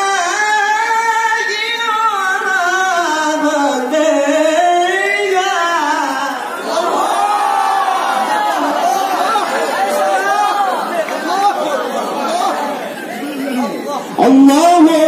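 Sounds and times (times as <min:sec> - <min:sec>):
man reciting melismatic chant: 0:00.0 - 0:06.9, 0:13.5 - 0:15.0.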